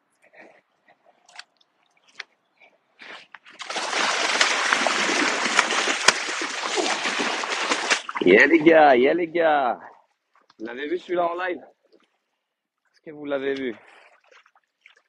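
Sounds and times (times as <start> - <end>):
fish thrashing and splashing: 3.4 - 8.7.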